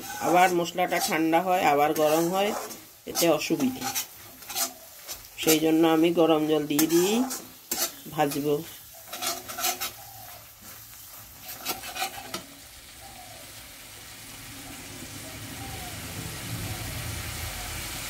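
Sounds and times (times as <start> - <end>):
steel spatula scraping a pan: 0.0 - 12.6
masala sizzling in oil: 0.0 - 18.0.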